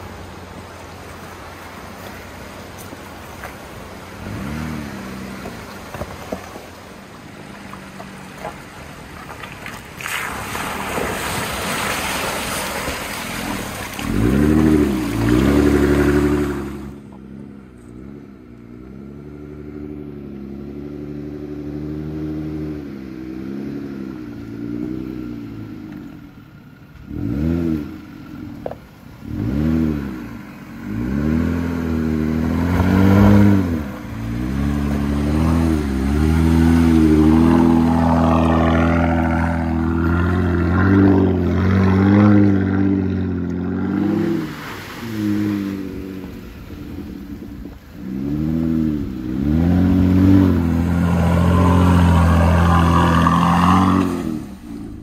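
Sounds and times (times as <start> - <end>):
creek water rushing and splashing: 0.0 - 17.4, 28.3 - 55.0
engine revving: 4.2 - 5.6, 13.4 - 26.0, 27.0 - 28.6, 29.2 - 55.0.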